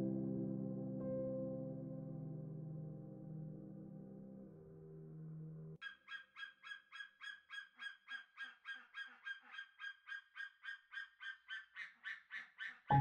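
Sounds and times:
eagle calling: 0:05.8 - 0:13.0.

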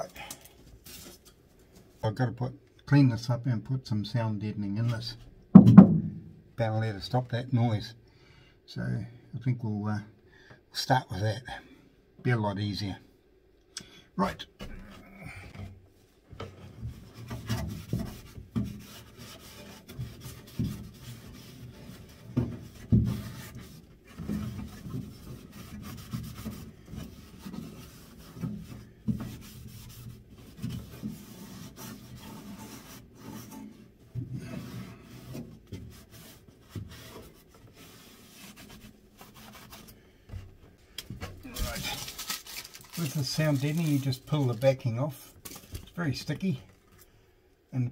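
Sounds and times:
dull knocks on van body: 0:05.6 - 0:06.3
cloth rubbing on steel panel: 0:16.6 - 0:40.3, 0:41.5 - 0:45.7.

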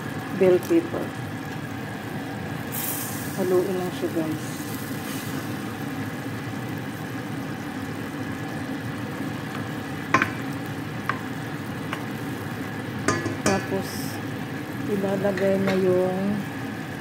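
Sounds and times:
simmering hiss: 0:02.7 - 0:05.8
spatula knocking against pot: 0:10.1 - 0:10.4, 0:13.1 - 0:13.7.

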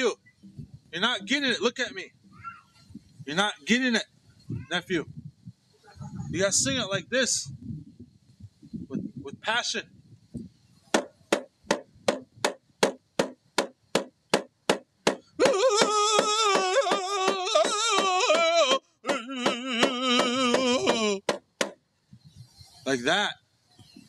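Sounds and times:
hand drum beaten steadily: 0:11.0 - 0:18.5
loud wavering singing: 0:15.4 - 0:21.4.

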